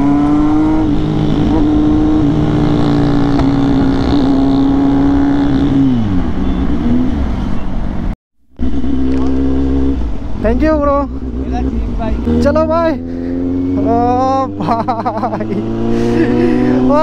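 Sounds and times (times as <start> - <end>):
motorcycle engine running: 8.6 - 17.0.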